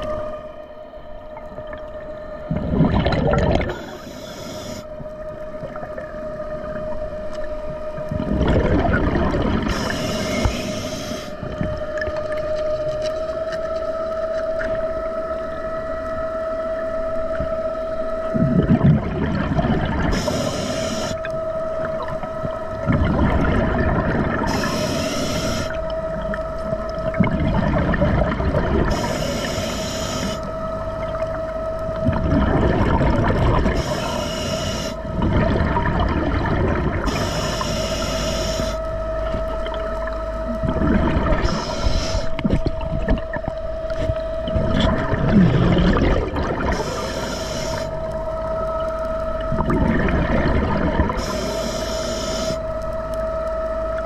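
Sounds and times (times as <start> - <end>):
underwater electric motor whine: 0.0 - 54.0
exhaled bubbles rushing: 1.4 - 4.2, 7.6 - 10.7, 18.3 - 21.2, 21.8 - 29.6, 30.3 - 34.3, 34.9 - 37.6, 38.6 - 51.6
regulator inhalation hiss: 3.7 - 4.9, 9.7 - 11.4, 20.1 - 21.2, 24.5 - 25.8, 28.9 - 30.5, 33.8 - 35.1, 37.1 - 39.0, 41.4 - 42.4, 46.8 - 48.0, 51.2 - 52.7.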